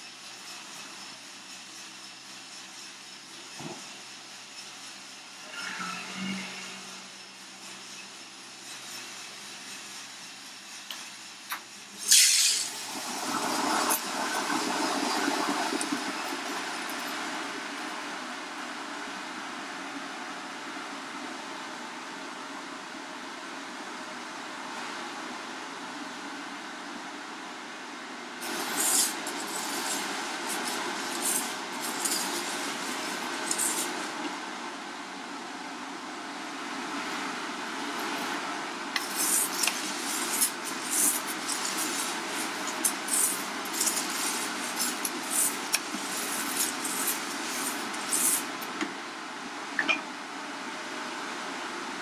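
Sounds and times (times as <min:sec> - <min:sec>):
roaster fan noise: 0:00.0 - 0:52.0
coffee beans rustling and rattling: 0:28.4 - 0:34.2, 0:39.0 - 0:48.8.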